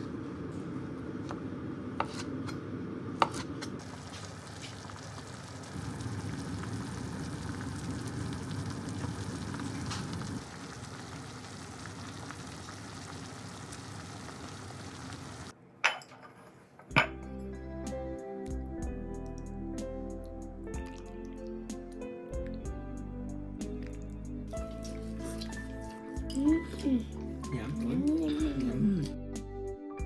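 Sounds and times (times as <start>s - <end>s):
knife cutting on cutting board: 2.0s - 2.4s, 3.2s - 3.7s
pot simmering and bubbling: 3.4s - 15.5s.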